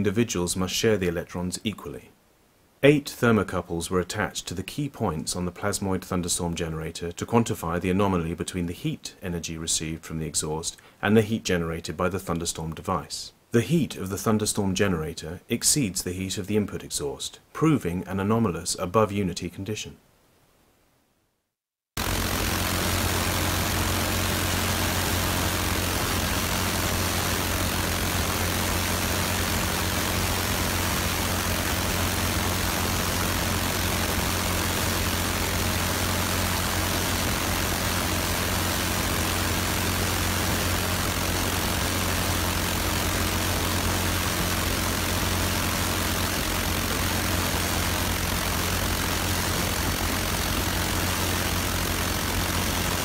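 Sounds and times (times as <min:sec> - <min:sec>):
engine running drone: 0:22.0 - 0:53.0.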